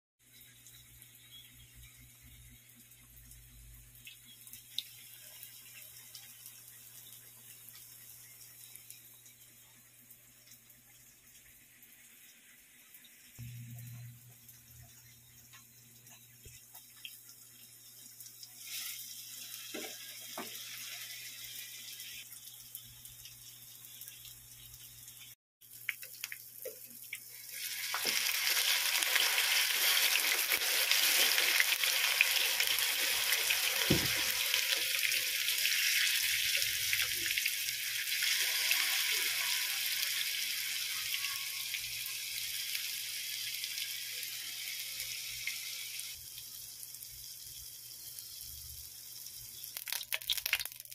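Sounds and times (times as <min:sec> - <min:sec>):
tofu sizzling in hot oil: 0:17.6 - 0:50.9.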